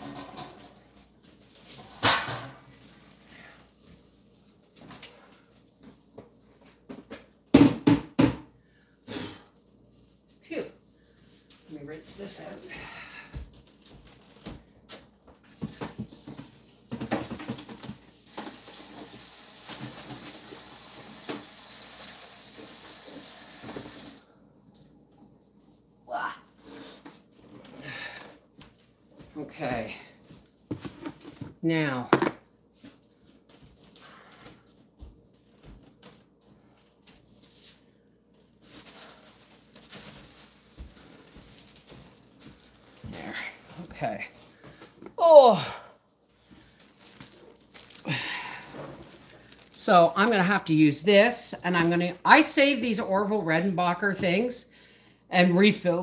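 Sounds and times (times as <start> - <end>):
kitchen things clattering: 0.0 - 2.9.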